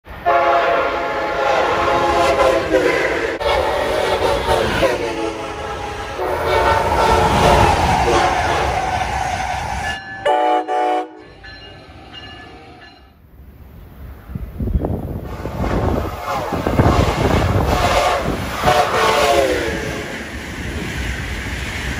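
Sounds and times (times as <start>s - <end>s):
train rumbling past: 0.0s - 21.9s
train air horns: 0.2s - 11.4s, 15.3s - 20.1s.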